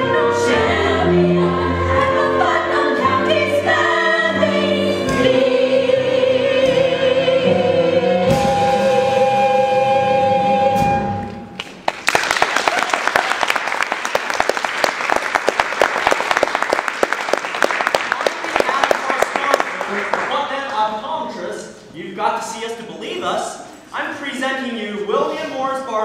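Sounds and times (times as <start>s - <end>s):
cast singing together: 0.0s - 11.2s
audience applause: 11.6s - 20.6s.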